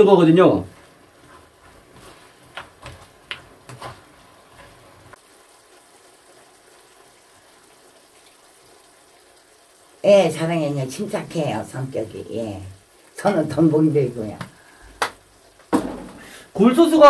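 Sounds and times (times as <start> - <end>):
food sizzling in a pan: 0.0 - 17.0
wooden spatula knocking pan: 15.7 - 16.2.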